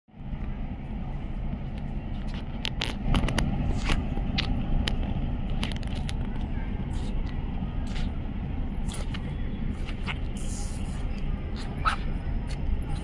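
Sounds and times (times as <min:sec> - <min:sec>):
low rumble: 0:00.1 - 0:13.0
sharp clicks and crackles: 0:01.8 - 0:08.1.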